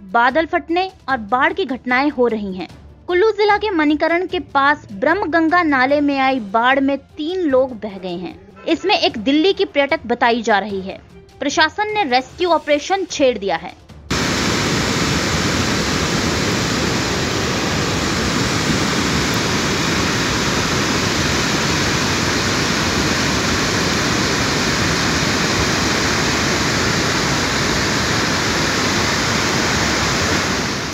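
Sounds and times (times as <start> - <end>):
stream rushing in flood: 14.1 - 30.9.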